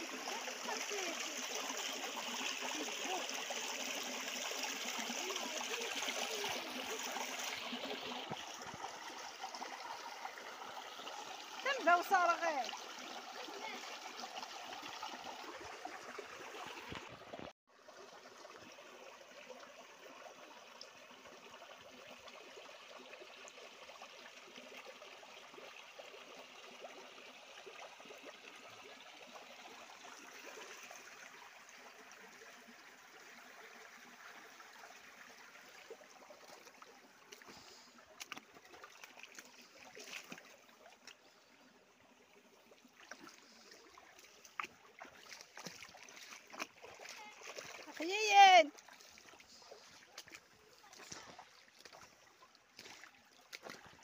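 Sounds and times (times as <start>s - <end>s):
stream trickling over rocks: 0.0s - 54.0s.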